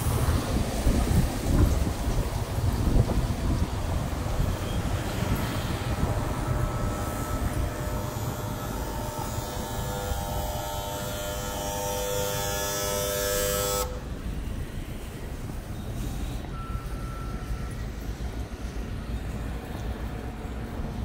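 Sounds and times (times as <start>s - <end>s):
low rumble of vehicles: 0.0s - 21.0s
mechanical whine of several tones: 4.4s - 14.0s.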